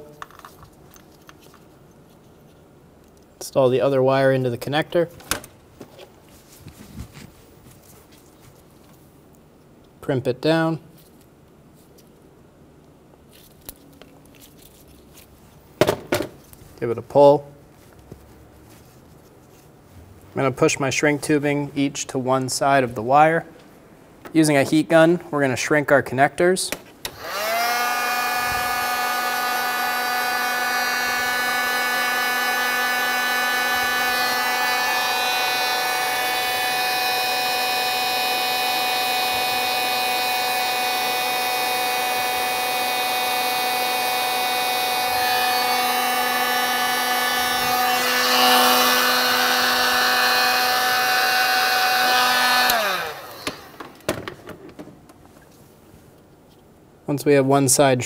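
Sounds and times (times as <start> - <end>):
heat gun winding down: 27.0 - 54.1
heat gun fan humming: 27.0 - 54.8.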